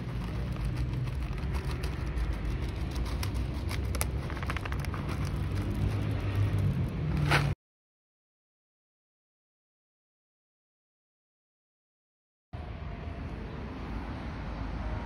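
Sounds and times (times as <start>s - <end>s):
street traffic rumble: 0.0s - 7.6s, 12.6s - 15.0s.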